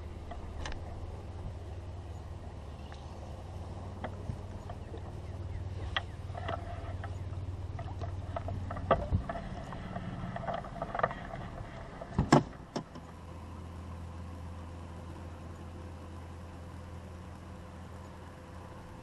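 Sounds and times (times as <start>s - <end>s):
faint steady whine: 0.0s - 19.0s
low steady hum: 0.0s - 19.0s
knocks and thumps on boat: 7.8s - 12.9s.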